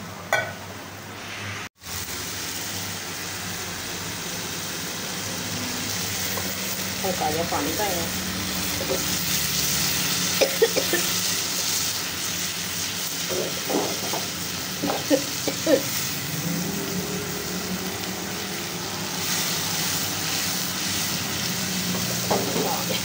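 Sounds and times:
onions sizzling in oil: 0.3s - 23.0s.

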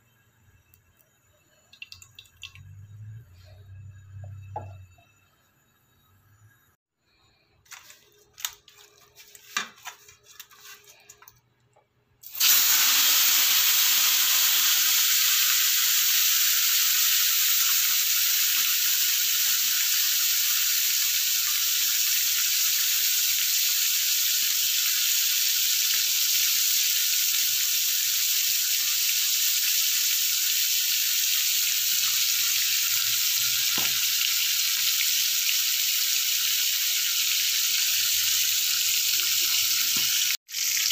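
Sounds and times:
fish sizzling in hot oil: 12.3s - 40.9s.

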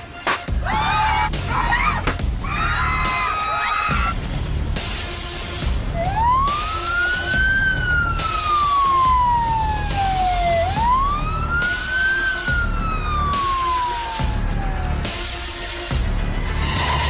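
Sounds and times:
music with pulsing low beat: 0.0s - 17.0s
siren wailing: 5.9s - 15.3s.

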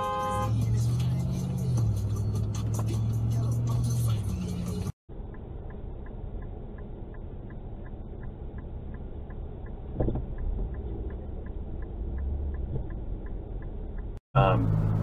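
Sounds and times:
car idling rumble: 4.8s - 15.0s
regular light ticking: 5.2s - 14.2s.

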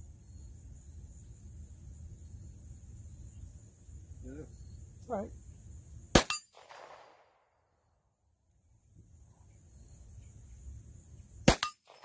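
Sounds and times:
pistol shots with echo: 6.2s - 7.2s, 11.5s - 12.0s.

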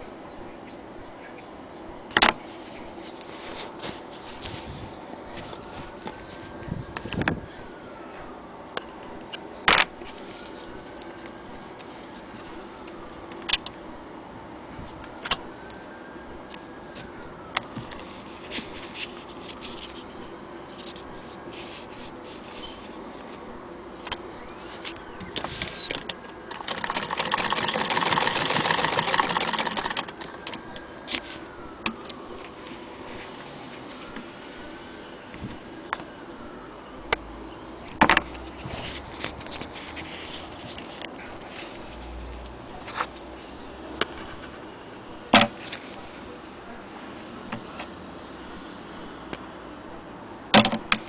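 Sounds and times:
faint rising and falling tone: 1.9s - 45.3s
sewing machine stitching clatter: 26.5s - 30.2s.

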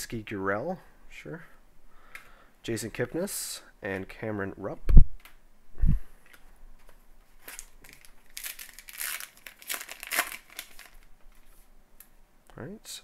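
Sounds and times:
wrapper crinkling: 7.4s - 11.6s.

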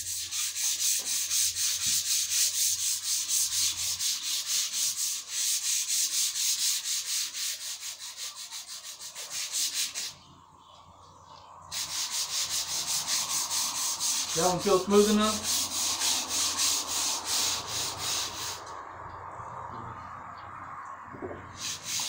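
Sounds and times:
sandpaper rasping on wood: 0.0s - 10.2s, 11.7s - 18.7s, 21.5s - 22.0s.

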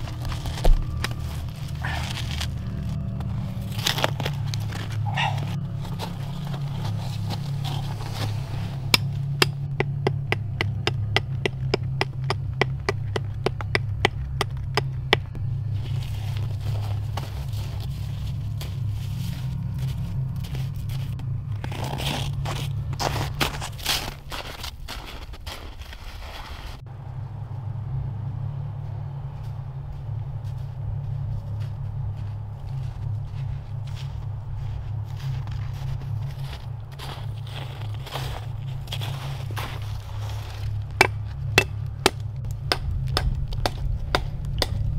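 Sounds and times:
footsteps crunching in snow: 0.0s - 9.4s, 15.3s - 26.8s, 28.8s - 42.0s
steady low hum: 0.0s - 26.0s, 26.6s - 44.9s
steady low rumble: 0.0s - 44.9s
blade chopping tree trunk: 8.9s - 15.4s, 41.0s - 44.9s.

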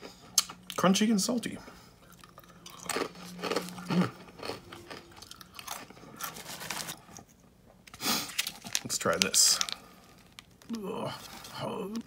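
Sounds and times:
crunchy snack being chewed: 2.0s - 7.3s.

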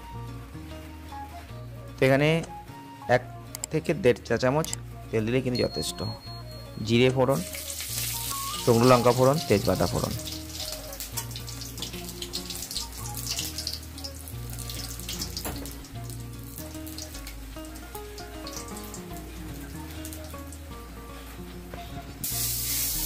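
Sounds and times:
background music with bass line: 0.0s - 23.0s
spices crackling in hot oil: 7.3s - 21.6s, 22.2s - 23.0s.

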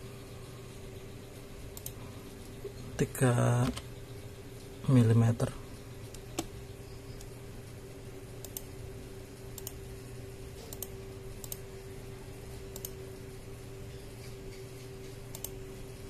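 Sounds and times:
low electrical hum: 0.0s - 16.0s
mouse and keyboard clicks: 14.5s - 15.6s.

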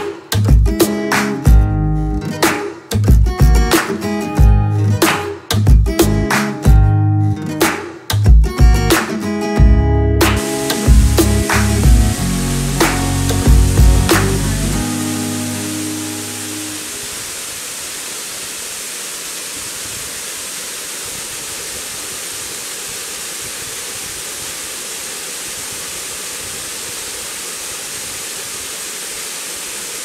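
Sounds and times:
waterfall rushing: 10.2s - 30.0s
music chord: 10.3s - 16.9s.

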